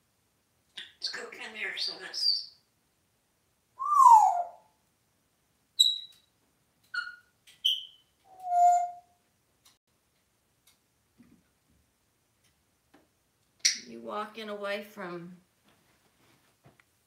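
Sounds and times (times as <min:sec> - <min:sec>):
parrot chirps: 0:00.7 - 0:02.7, 0:03.8 - 0:04.7, 0:05.8 - 0:06.3, 0:06.9 - 0:09.1
parrot whistling: 0:03.8 - 0:04.7, 0:05.8 - 0:06.2, 0:07.0 - 0:09.1.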